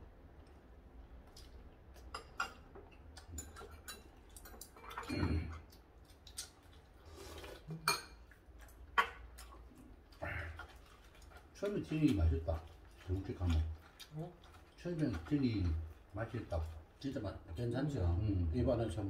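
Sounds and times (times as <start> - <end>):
cutlery clinking on ceramic bowls: 2.0 - 5.6, 7.8 - 8.3.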